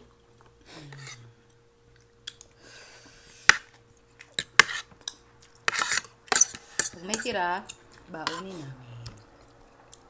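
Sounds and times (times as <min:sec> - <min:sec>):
soft chewing: 0:00.0 - 0:02.7, 0:07.7 - 0:10.0.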